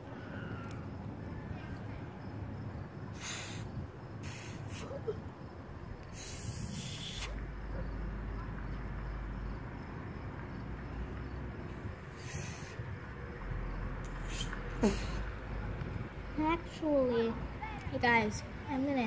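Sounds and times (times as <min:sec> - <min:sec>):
low outdoor rumble: 0:00.0 - 0:19.0
short hissing bursts: 0:03.1 - 0:05.0, 0:06.1 - 0:07.4, 0:12.1 - 0:12.9, 0:14.1 - 0:15.2.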